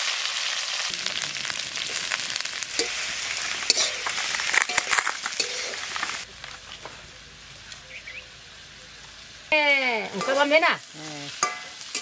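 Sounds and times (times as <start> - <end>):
onions sizzling in hot oil: 0.0 - 12.0
metal spatula scraping pan: 3.7 - 5.8, 11.3 - 12.0.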